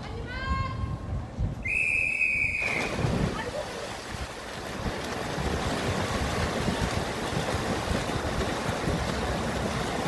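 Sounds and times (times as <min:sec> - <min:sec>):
swimmers splashing water: 0:02.3 - 0:10.0.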